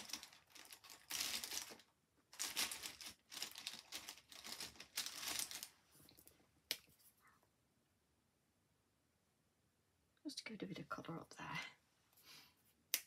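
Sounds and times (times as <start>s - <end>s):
markers rustling and crinkling: 0.0s - 7.2s.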